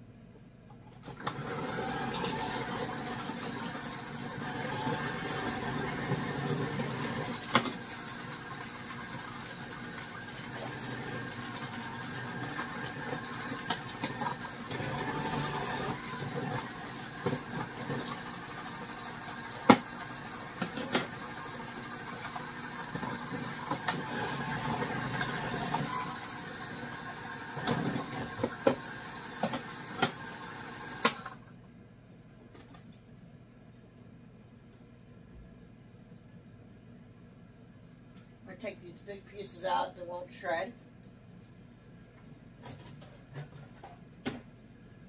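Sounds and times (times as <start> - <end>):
food processor motor running: 1.2 - 31.4
pieces knocking on spinning disc: 19.6 - 20.0.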